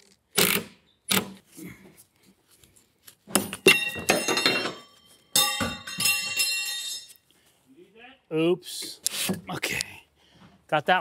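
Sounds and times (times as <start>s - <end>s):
sharp knocks with metallic ring: 3.3s - 7.1s.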